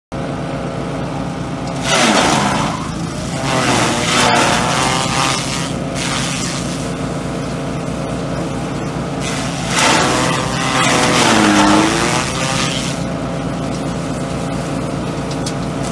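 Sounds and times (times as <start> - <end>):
small engine running: 0.2 - 15.9.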